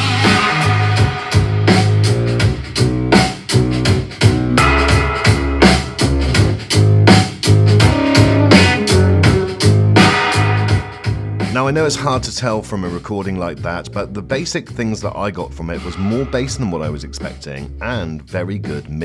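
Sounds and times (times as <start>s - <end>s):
music through a speaker: 0.0s - 12.4s
strong bass line: 0.0s - 18.8s
keyboard: 0.0s - 19.0s
steady drum beat: 0.0s - 19.0s.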